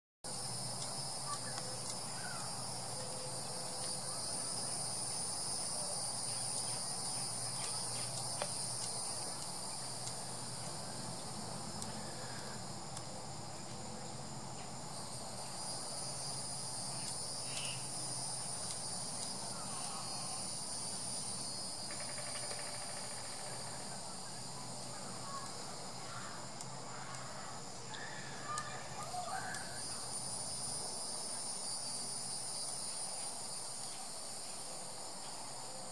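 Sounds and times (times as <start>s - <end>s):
high-pitched insect drone: 0.3s - 12.9s, 14.3s - 35.9s
grasshopper chewing clicks: 0.7s - 2.1s, 6.2s - 12.0s, 16.2s - 17.8s, 18.4s - 19.8s.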